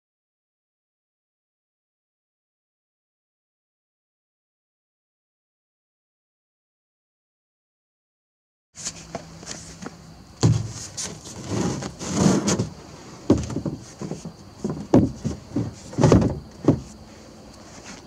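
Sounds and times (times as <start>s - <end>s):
seat knocking on plastic drum: 10.4s - 10.9s, 13.3s - 16.9s.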